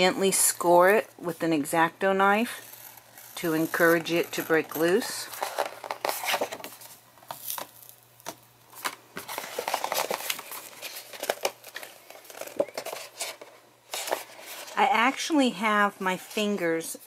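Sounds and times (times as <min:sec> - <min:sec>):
paper crackling and rustling: 0:02.4 - 0:07.9, 0:08.7 - 0:15.1.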